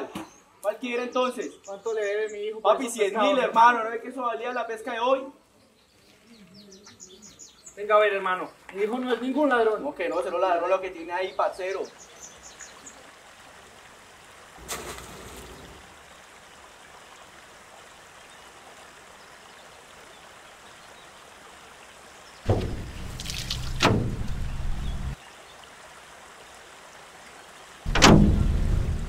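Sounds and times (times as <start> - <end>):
faint flow of water: 0.3 - 29.0
water splashing: 12.5 - 19.2, 22.4 - 25.2, 27.8 - 29.0.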